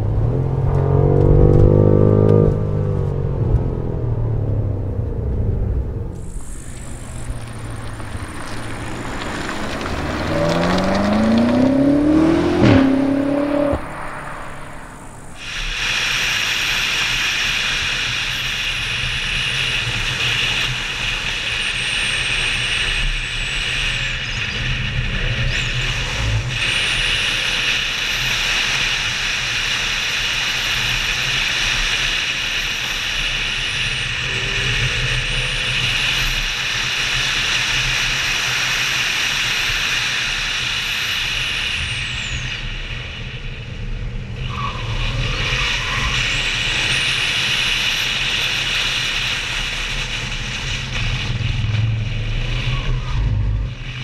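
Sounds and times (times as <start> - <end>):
car engine running: 0.0 - 15.7
wind and road noise: 0.0 - 54.0.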